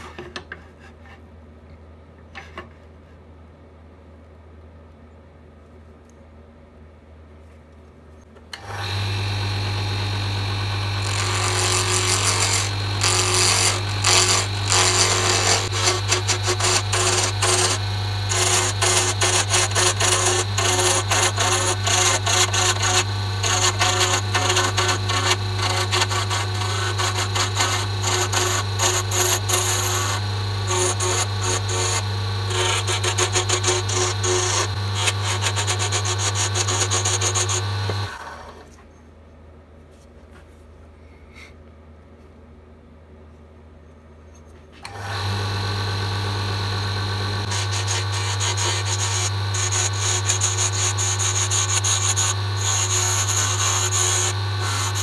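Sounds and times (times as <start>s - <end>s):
lathe motor hum: 8.6s - 38.6s, 44.9s - 55.0s
lathe tool scraping wood: 8.6s - 38.6s, 44.8s - 55.0s.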